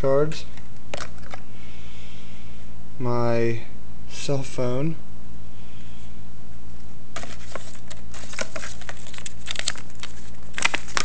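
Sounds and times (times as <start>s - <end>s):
plastic and paper crinkling: 7.2s - 11.0s.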